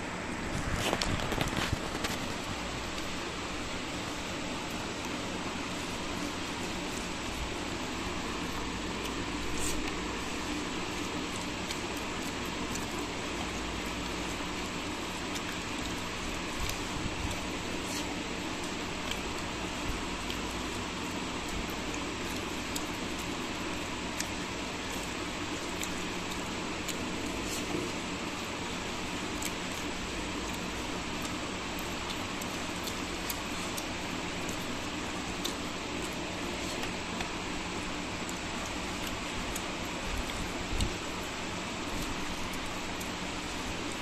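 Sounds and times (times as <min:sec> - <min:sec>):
steady fan-like hiss: 0:00.0 - 0:44.0
fingers mixing rice: 0:00.3 - 0:44.0.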